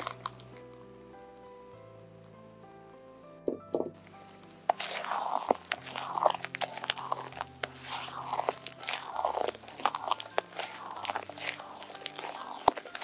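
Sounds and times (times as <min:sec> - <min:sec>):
crisp crunching and scraping: 0:00.0 - 0:00.7, 0:04.0 - 0:13.0.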